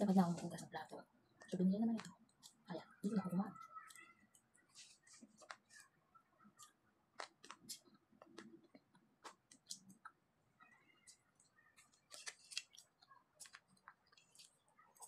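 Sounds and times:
soft chewing: 0.1 - 15.0.

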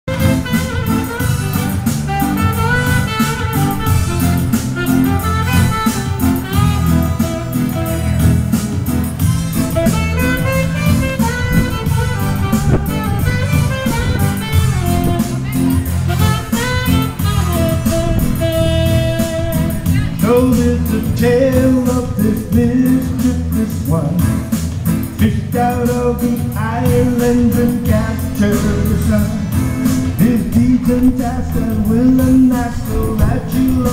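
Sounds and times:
saxophone melody: 0.0 - 21.9
bass line: 0.0 - 33.9
guitar: 0.0 - 33.9
steady beat: 0.1 - 33.9
man singing a ballad: 19.5 - 33.9.

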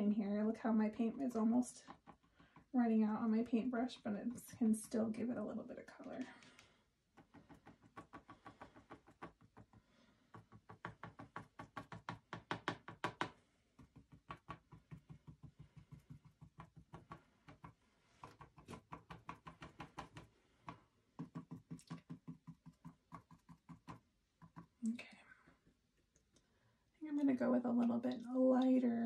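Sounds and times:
paintbrush tapping on canvas: 7.2 - 24.7.

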